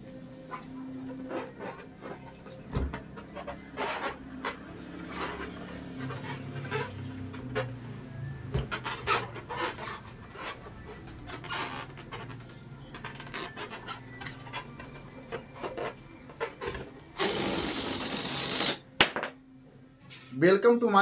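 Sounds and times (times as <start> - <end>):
balloon squeaking and rubbing: 0.5 - 18.9
loud air hiss: 17.2 - 18.9.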